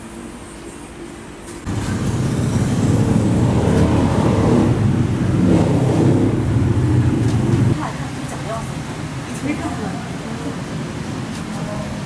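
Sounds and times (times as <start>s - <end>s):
vehicle engine running: 1.7s - 11.3s.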